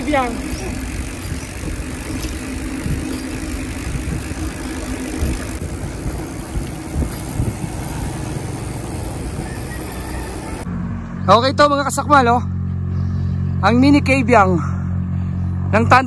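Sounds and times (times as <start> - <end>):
wind and road rumble: 0.0 - 16.0.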